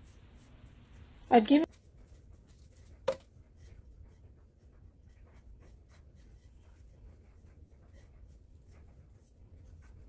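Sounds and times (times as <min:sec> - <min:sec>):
low room hum: 0:00.0 - 0:10.0
paintbrush strokes on tin can: 0:00.0 - 0:10.0.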